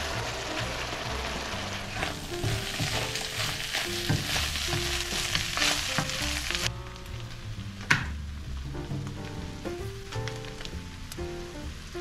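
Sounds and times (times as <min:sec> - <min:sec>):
wooden spatula scraping: 0:00.0 - 0:07.4
meat sizzling in a wok: 0:00.0 - 0:08.5, 0:09.5 - 0:12.0.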